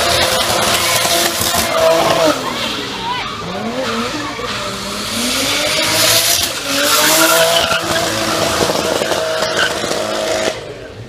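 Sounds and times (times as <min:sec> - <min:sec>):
race car engine revving: 0:00.0 - 0:11.0
tyres squealing: 0:05.7 - 0:10.0.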